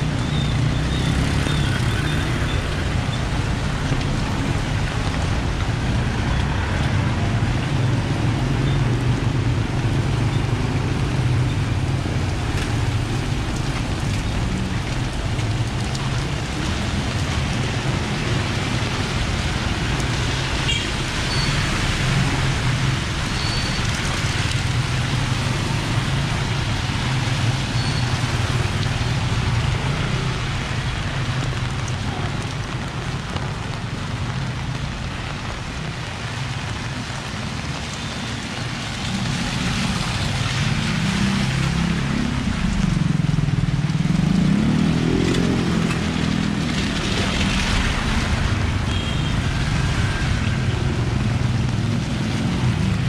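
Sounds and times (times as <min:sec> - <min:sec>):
passing vehicle engines: 0:00.0 - 0:31.5
rain hissing: 0:09.6 - 0:53.0.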